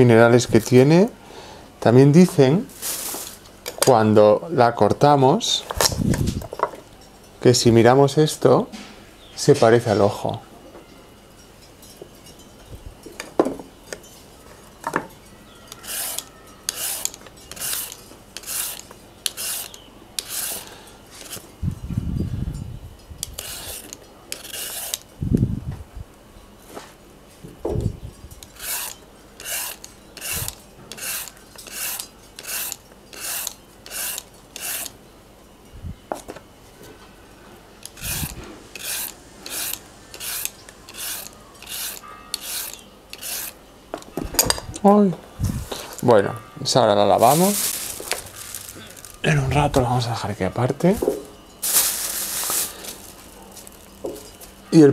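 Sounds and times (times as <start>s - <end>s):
peeler scraping a carrot: 15.6s - 21.4s, 23.2s - 25.1s, 28.4s - 35.0s, 37.8s - 43.6s.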